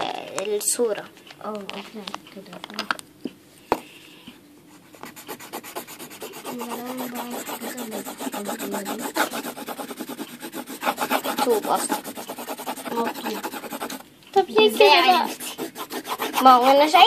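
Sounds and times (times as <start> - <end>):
colored pencil shading on paper: 4.7 - 17.0.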